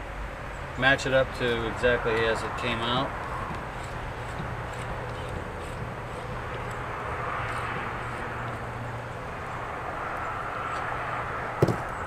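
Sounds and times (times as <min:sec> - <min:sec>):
distant engine drone: 0:00.0 - 0:12.0.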